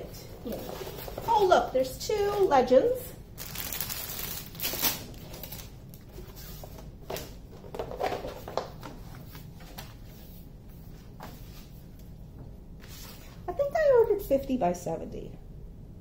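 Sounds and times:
canvas rustling and crackling: 3.4s - 6.5s.

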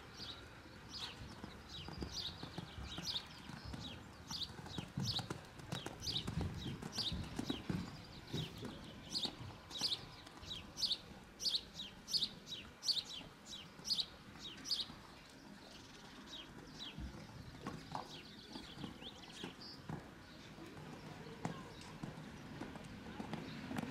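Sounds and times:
bird chirping: 0.1s - 15.0s.

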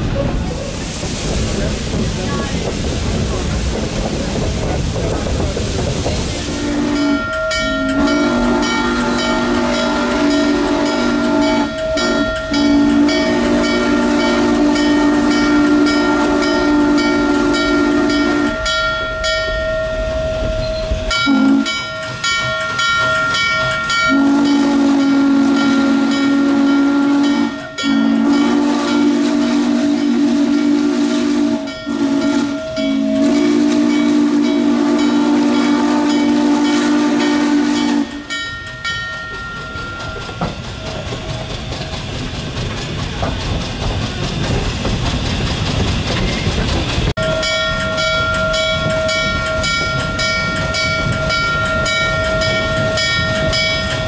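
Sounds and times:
steam whistle blasts: 6.4s - 18.7s, 20.7s - 21.9s, 24.0s - 38.4s.

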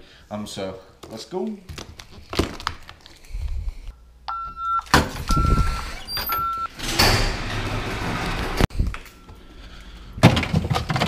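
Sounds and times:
electronic beeps: 4.3s - 6.7s
door and handling noises: 4.8s - 9.4s.

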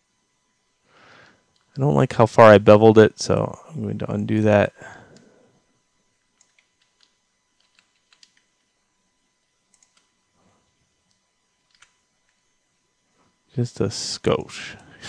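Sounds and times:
keyboard and mouse clicks: 6.4s - 8.6s, 9.7s - 10.1s, 11.1s - 12.4s.

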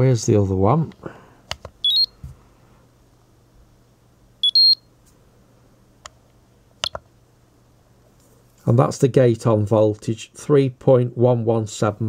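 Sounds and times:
rising electronic beeps: 1.8s - 2.1s, 4.4s - 4.8s.

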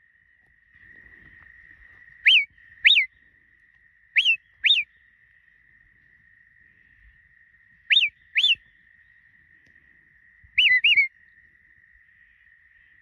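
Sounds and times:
sheepdog whistle commands: 4.2s - 4.8s, 10.6s - 11.1s.

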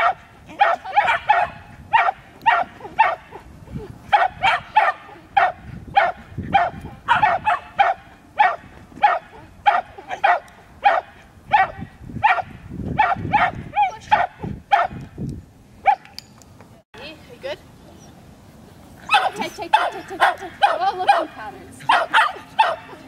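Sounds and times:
dog barking: 0.0s - 3.4s, 4.1s - 15.0s, 19.1s - 21.3s, 21.9s - 23.0s.

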